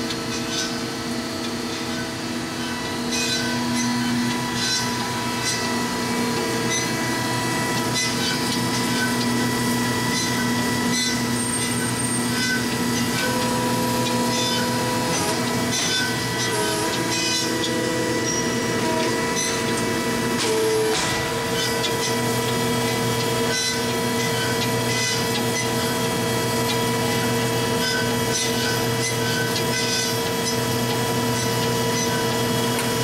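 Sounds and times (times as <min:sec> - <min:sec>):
band saw humming: 0:00.0 - 0:33.0.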